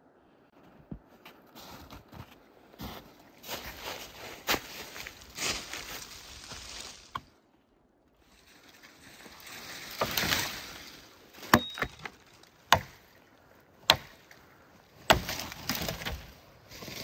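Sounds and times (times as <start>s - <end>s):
dry brush rustling: 1.1s - 7.4s, 15.1s - 17.0s
axe chopping branches: 9.9s - 10.8s, 11.4s - 13.2s, 13.8s - 14.4s, 15.0s - 17.0s.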